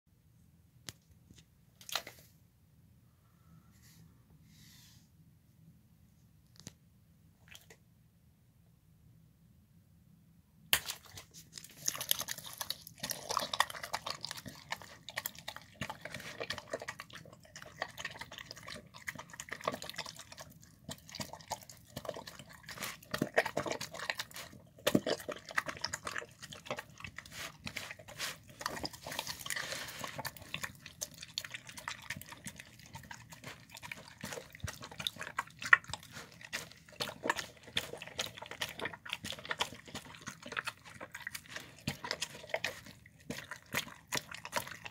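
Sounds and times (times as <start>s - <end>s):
dog eating and slurping: 7.4s - 7.8s, 10.8s - 44.9s.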